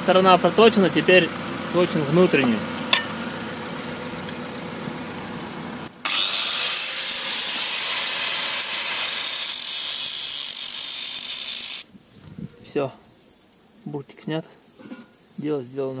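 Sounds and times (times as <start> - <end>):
angle grinder grinding metal: 6.0 - 11.8.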